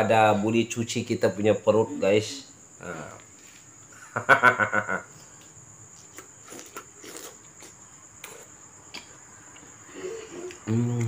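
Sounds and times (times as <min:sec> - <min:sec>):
short pulsing vocal sound: 0:10.3 - 0:11.0.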